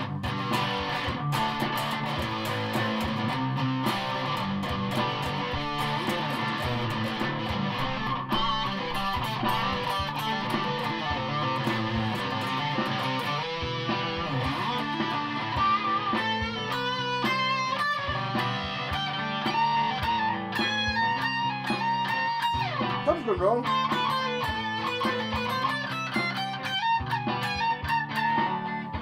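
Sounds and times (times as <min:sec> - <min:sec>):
electric guitar through amplifier: 0:00.0 - 0:29.0.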